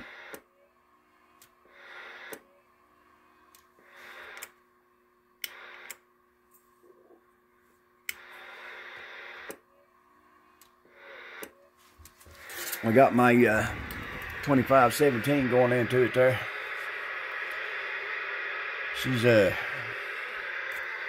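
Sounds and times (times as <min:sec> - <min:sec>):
radio static hiss: 0:00.0 - 0:00.4, 0:01.6 - 0:02.5, 0:03.8 - 0:04.6, 0:05.4 - 0:06.1, 0:08.2 - 0:09.7, 0:10.8 - 0:21.0
faint steady hum: 0:00.0 - 0:21.0.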